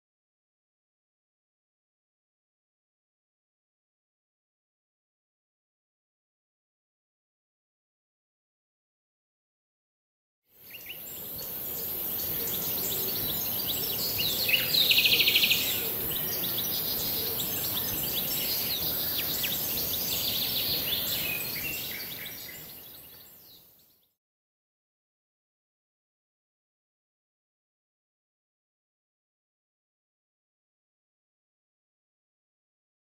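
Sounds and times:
steady high hiss: 10.6 - 23.5
birds chirping and calling: 10.7 - 23.5.

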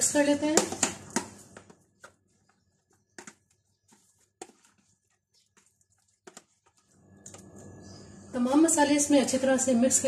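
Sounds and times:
spoon scraping plastic tub: 0.6 - 8.0.

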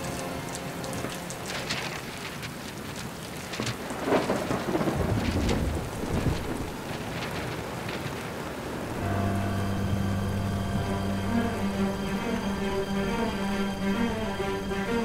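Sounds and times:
steady rain falling: 0.0 - 15.0
low roll of thunder: 1.4 - 11.4.

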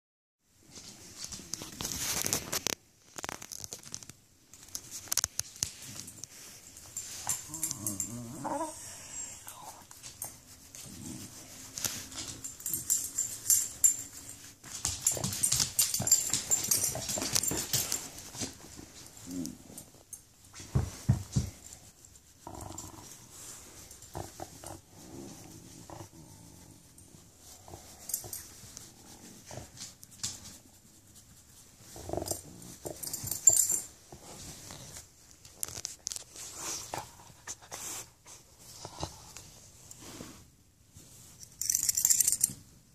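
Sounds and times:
hands rubbing fur: 4.6 - 42.5
dog whining and grumbling: 7.1 - 9.8.

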